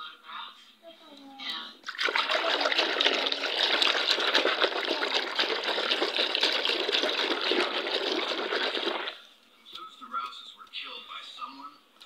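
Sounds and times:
water splashing in plastic basin: 1.8 - 9.2.

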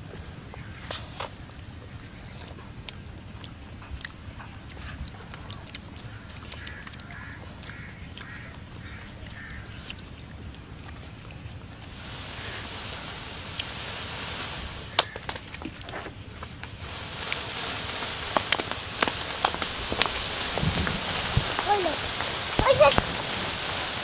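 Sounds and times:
birds chirping trills: 0.0 - 24.0
bird calling: 3.7 - 24.0
low steady rumble: 10.0 - 24.0.

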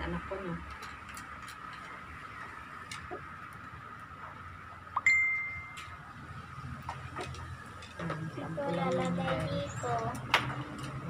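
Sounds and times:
bright high ding: 5.0 - 5.8.

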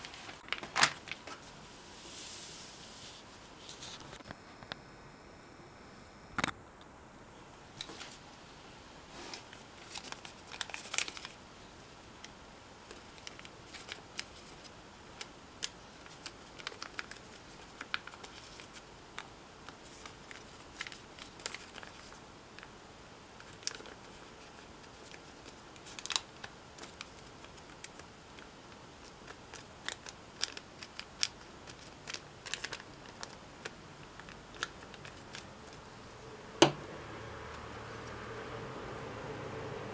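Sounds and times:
paper crinkling and rustling: 0.0 - 1.6, 9.2 - 11.4, 12.9 - 14.7, 15.6 - 22.7, 23.4 - 35.9.

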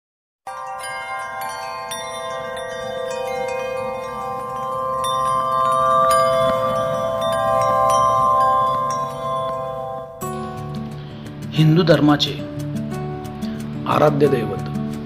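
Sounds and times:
shimmering chime jingle: 0.5 - 10.9.

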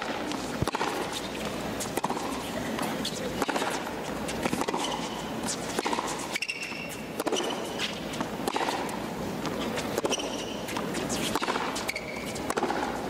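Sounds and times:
rackets striking tennis ball: 0.0 - 13.0
shoe squeaks on court: 4.3 - 8.2, 9.6 - 12.5.

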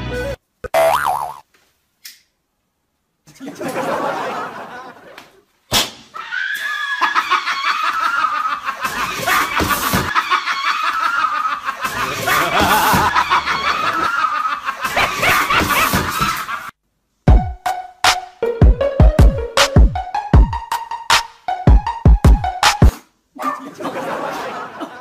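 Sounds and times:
person laughing hard: 6.8 - 16.7
beat-driven music: 17.3 - 22.9.

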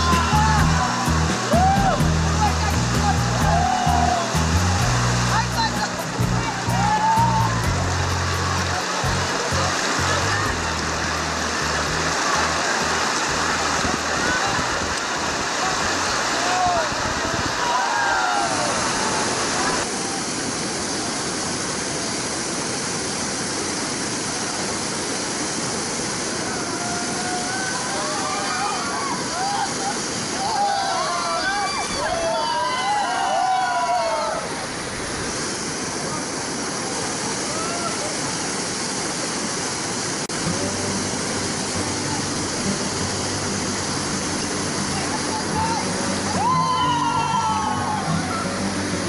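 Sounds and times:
river rapids rushing: 0.0 - 49.0
faint voices: 5.3 - 20.5, 44.0 - 49.0.

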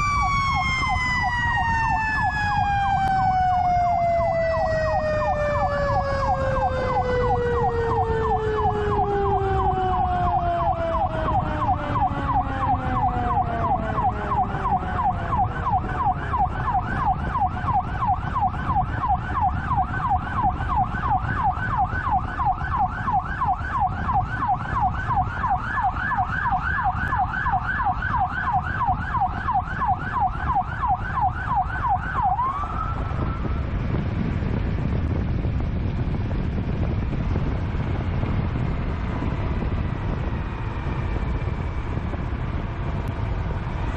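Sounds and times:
siren yelping: 0.0 - 33.7
siren tone sliding down: 0.0 - 33.8
road noise: 0.0 - 43.9
truck engine rumble: 0.0 - 43.9.

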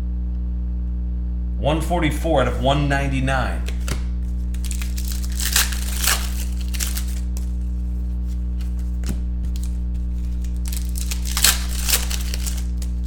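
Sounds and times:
electrical hum: 0.0 - 13.0
cards and wrapper crinkling: 3.5 - 13.0.

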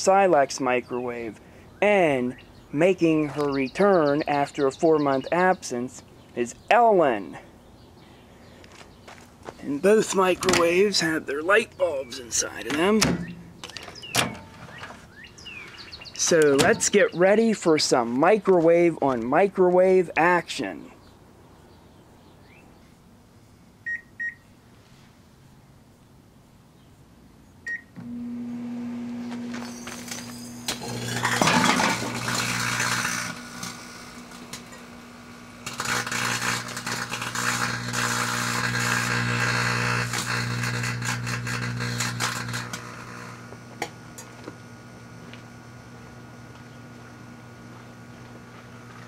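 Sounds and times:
microwave ovens humming: 9.8 - 17.5, 27.7 - 49.0
microwave keypad beeps: 23.9 - 24.4, 27.7 - 27.9
crackling and buzzing arcing bulbs: 28.0 - 49.0.

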